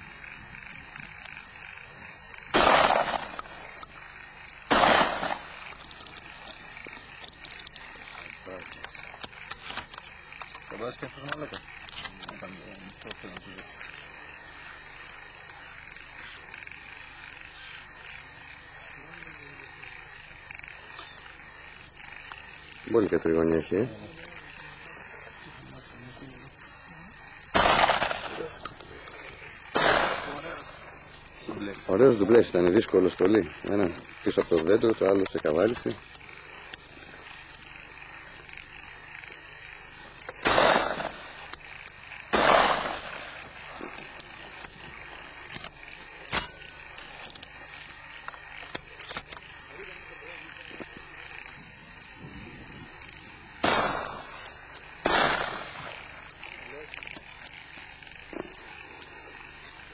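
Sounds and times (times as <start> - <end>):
outdoor background noise: 0.0 - 59.9
shotgun shots: 2.5 - 3.6, 4.7 - 5.6, 27.5 - 28.6, 29.7 - 30.5, 40.4 - 41.4, 42.3 - 43.4, 53.6 - 56.0.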